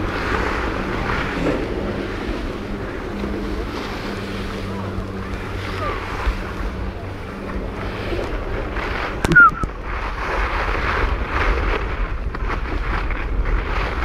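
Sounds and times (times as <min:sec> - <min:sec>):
wind buffeting microphone: 0:00.0 - 0:14.0
short squeak: 0:09.3 - 0:09.7.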